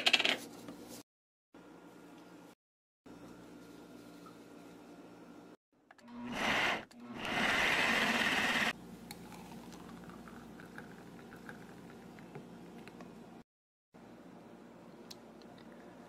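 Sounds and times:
blender motor running: 6.0s - 8.8s
juice pouring into a glass: 9.1s - 12.3s.

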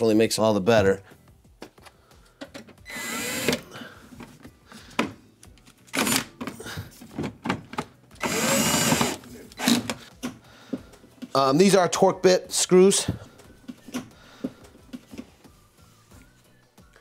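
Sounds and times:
cordless drill driving screws: 2.9s - 3.6s, 5.9s - 6.3s, 8.2s - 10.0s.

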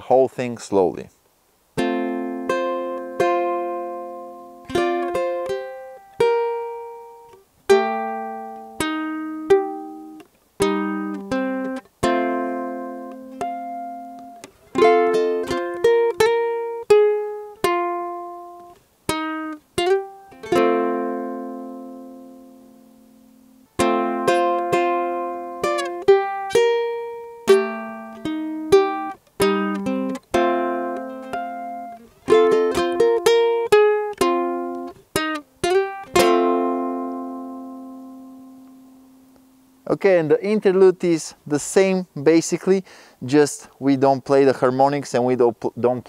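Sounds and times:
ukulele played fingerstyle: 1.8s - 39.9s.

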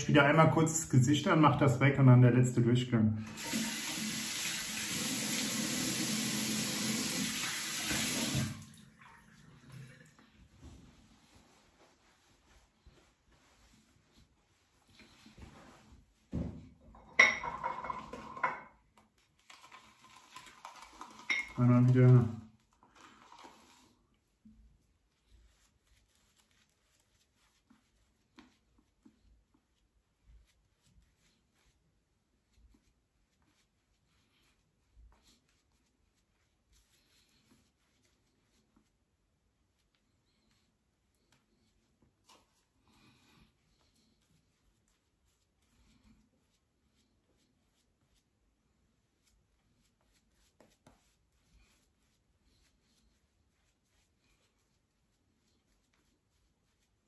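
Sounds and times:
shaving brush swishing lather: 0.0s - 2.1s, 3.3s - 8.8s, 9.5s - 16.4s, 19.0s - 57.0s
tap running into sink: 5.1s - 8.6s.

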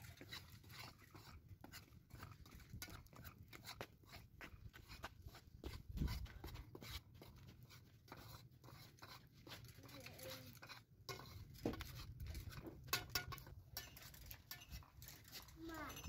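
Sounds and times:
metal spoon scraping pot: 0.0s - 4.3s, 4.9s - 16.0s.

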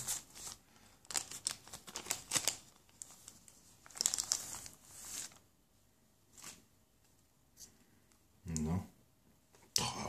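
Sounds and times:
plastic wrapping crinkling: 0.0s - 5.4s.

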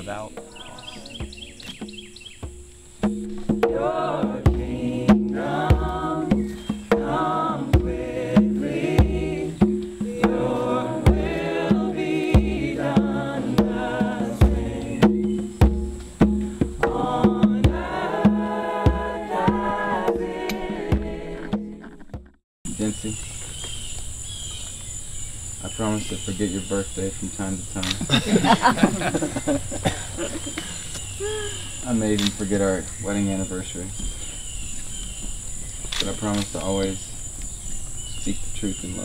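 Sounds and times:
song with singing and beat: 3.6s - 15.3s, 16.8s - 21.8s.

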